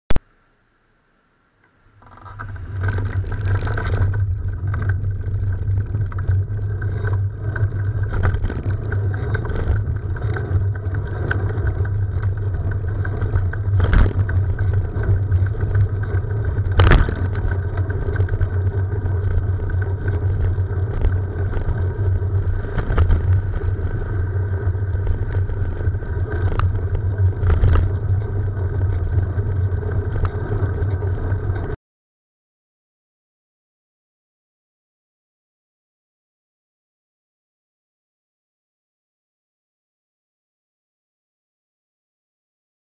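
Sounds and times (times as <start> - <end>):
wind: 0.1 - 31.8
road rumble: 1.5 - 31.8.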